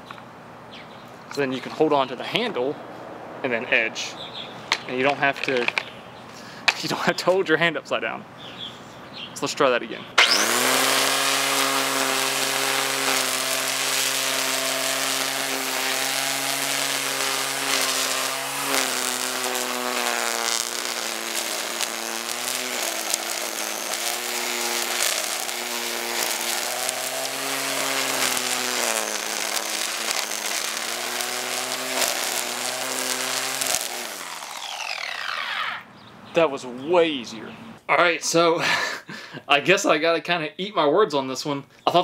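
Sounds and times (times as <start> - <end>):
trimmer line cutting grass: 10.2 - 35.9
string trimmer motor whining: 10.2 - 36.0.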